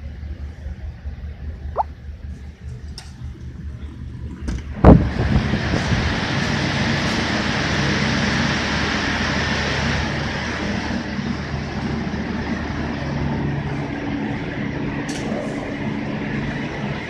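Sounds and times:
ship machinery drone: 0:05.3 - 0:17.0.

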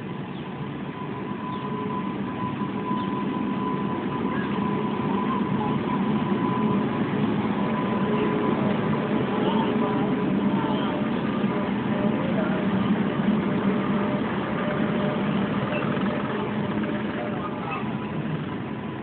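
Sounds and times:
thin steady high tone: 0:00.0 - 0:19.0
train rumble passing: 0:00.0 - 0:19.0.

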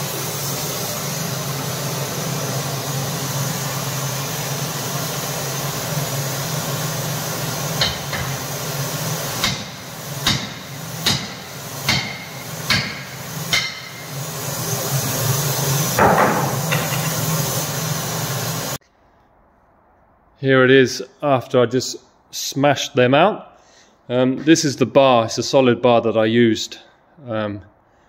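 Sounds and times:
steady background hum: 0:00.0 - 0:28.0
hammer striking steel rod: 0:07.8 - 0:08.3, 0:09.4 - 0:14.1, 0:16.0 - 0:17.2.

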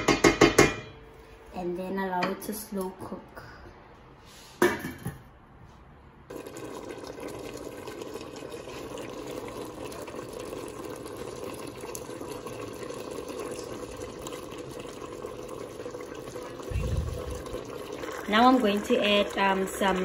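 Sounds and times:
curry simmering in a pot: 0:06.3 - 0:20.0.

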